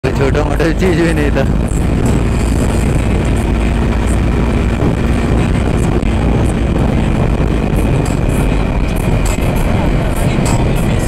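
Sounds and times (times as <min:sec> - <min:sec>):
motorcycle engine running: 0:00.0 - 0:11.0
wind buffeting microphone: 0:00.0 - 0:11.0.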